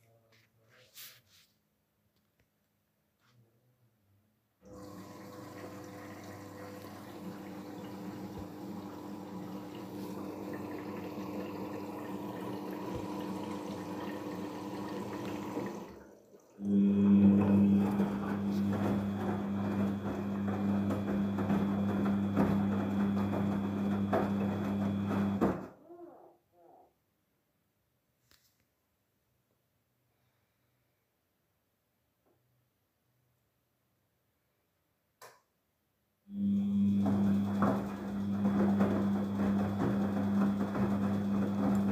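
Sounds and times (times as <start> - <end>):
washing machine motor humming: 4.6 - 25.7, 36.3 - 41.9.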